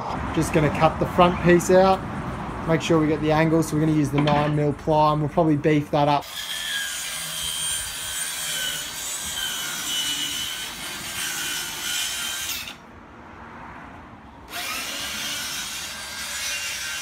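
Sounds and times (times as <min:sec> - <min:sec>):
power saw cutting plywood: 0:06.2 - 0:12.8, 0:14.5 - 0:17.0.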